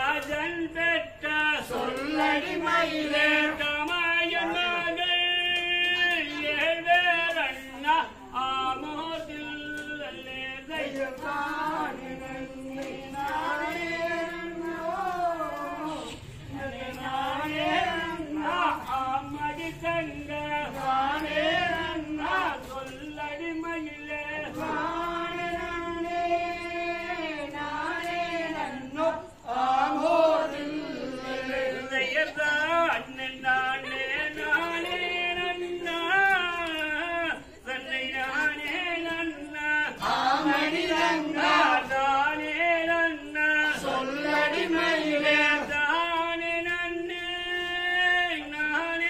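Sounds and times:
person singing folk song: 0.0 - 49.0.

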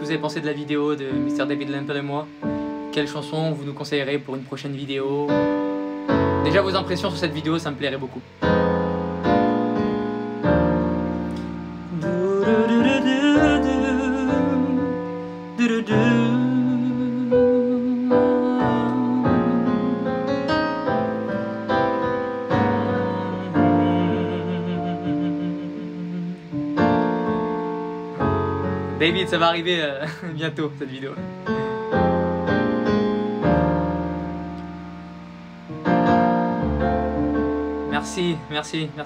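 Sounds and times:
electronic keyboard piano chords: 0.0 - 39.0
man singing wordless held notes: 11.8 - 20.4, 22.4 - 27.8.

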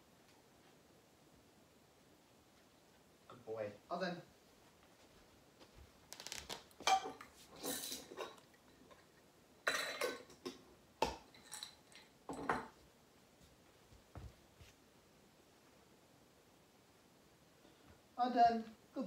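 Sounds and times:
light clinking and rattling: 11.2 - 12.8.

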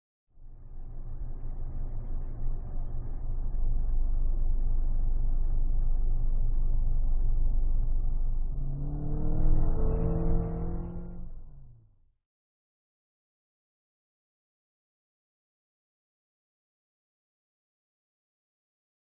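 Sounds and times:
car driving past: 0.6 - 11.9.

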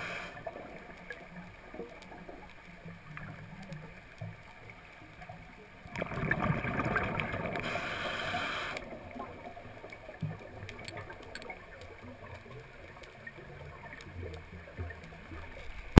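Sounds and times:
faint clicks: 0.0 - 16.0
underwater noise: 0.0 - 16.0
diver exhaling bubbles underwater: 5.9 - 9.0.

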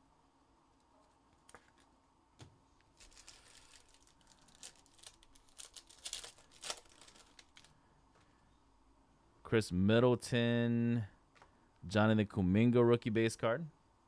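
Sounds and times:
foil wrapper crinkling and tearing: 2.9 - 7.8.

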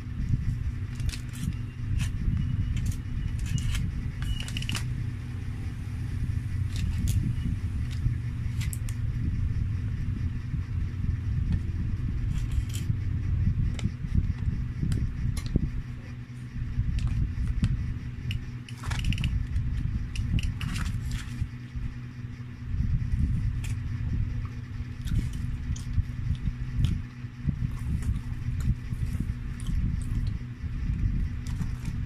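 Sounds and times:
low rumble: 0.0 - 32.0
person chewing fries: 24.9 - 27.0, 27.7 - 30.4.

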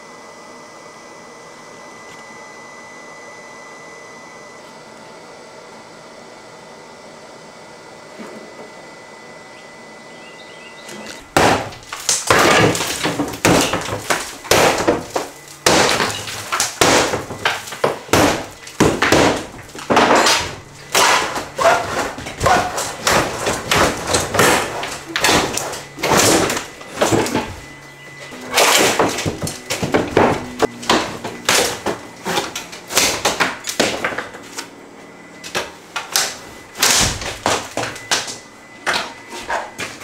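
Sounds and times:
steady hum: 0.0 - 40.0
bangs and breaking wood: 11.0 - 34.4, 35.4 - 40.0.

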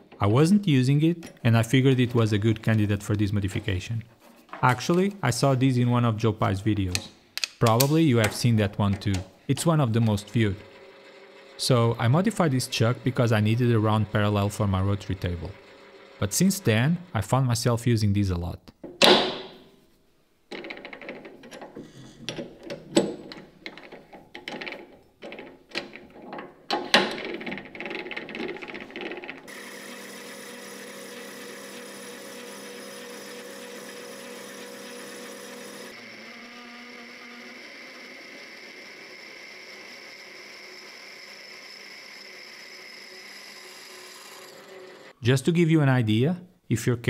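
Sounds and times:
drill boring into metal: 10.0 - 17.1, 29.5 - 45.2
metal lathe running: 10.0 - 17.1, 29.5 - 45.2.

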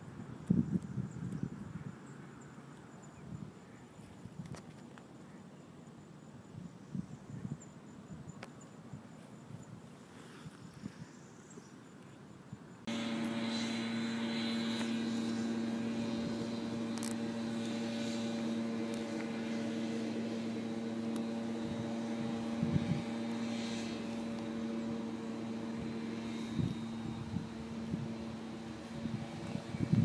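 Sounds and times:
machine humming: 12.9 - 30.0.

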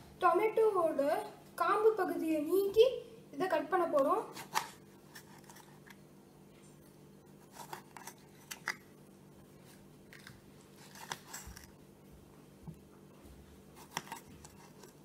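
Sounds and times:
knife slicing tomatoes: 13.8 - 15.0.

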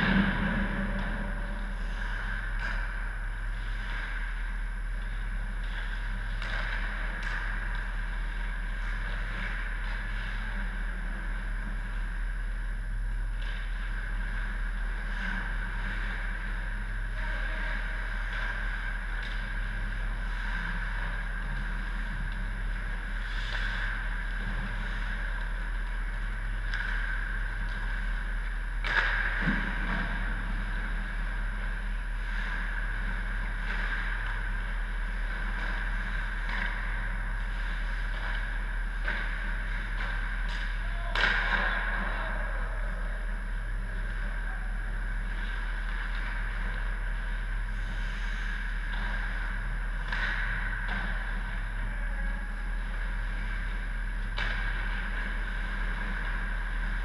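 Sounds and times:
steady mechanical hum: 0.0 - 57.0
pucks and sticks cracking: 25.3 - 28.0, 28.8 - 30.2, 32.9 - 42.6, 50.0 - 51.4, 54.2 - 57.0.

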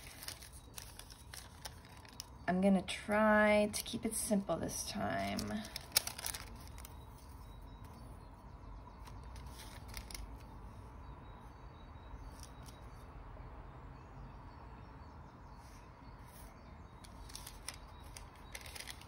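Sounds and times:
paper rustling: 0.0 - 2.4, 5.1 - 8.0, 9.0 - 10.6, 16.3 - 19.0.

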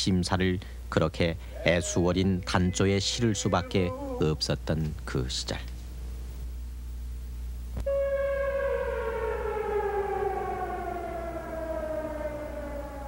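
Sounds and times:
siren winding down: 7.8 - 13.0.

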